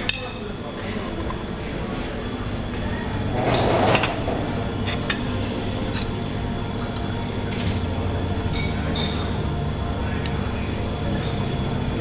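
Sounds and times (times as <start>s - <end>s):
room hum: 0.0s - 12.0s
dishes clattering: 3.3s - 5.3s, 7.5s - 9.3s
tongs and cutlery clinking on dishes: 6.9s - 9.3s.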